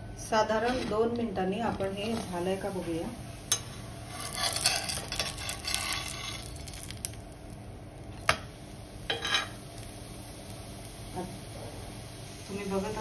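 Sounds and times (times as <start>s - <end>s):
metal spatula scraping iron pan: 3.5s - 6.5s, 9.1s - 9.6s.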